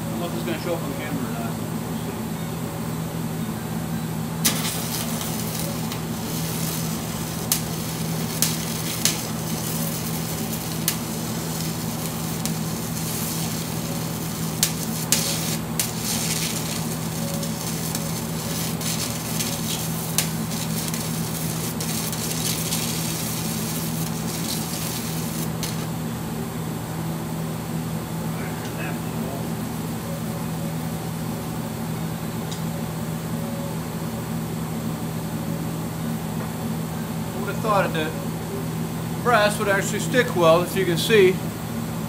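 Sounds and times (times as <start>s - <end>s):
sharp welding pops: 4.4s - 26.0s
welding arc crackling and sizzling: 4.4s - 26.0s.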